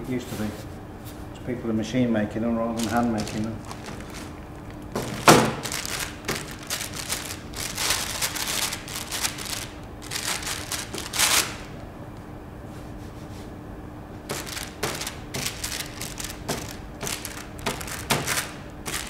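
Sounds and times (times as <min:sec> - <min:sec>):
steady low hum: 0:00.0 - 0:19.0
hands patting dough on paper: 0:02.8 - 0:11.4, 0:14.2 - 0:19.0.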